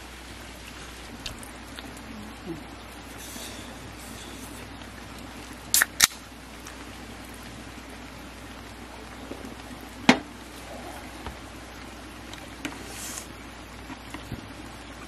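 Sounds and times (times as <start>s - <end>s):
can pull tab cracking open: 5.7s - 6.2s.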